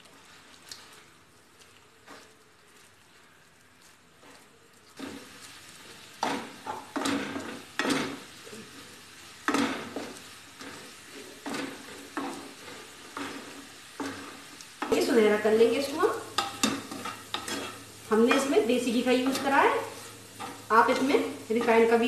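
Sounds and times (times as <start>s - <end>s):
food sizzling in a pan: 0.0s - 22.0s
spatula scraping a pan: 5.0s - 22.0s.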